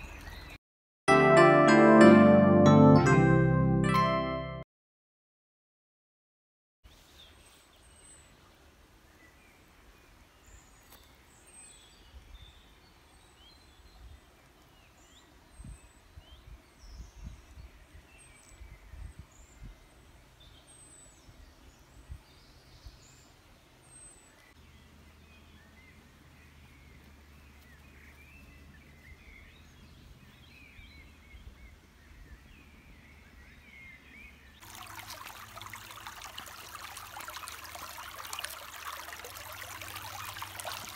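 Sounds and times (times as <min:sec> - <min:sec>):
running stream water: 0:34.6 - 0:40.9.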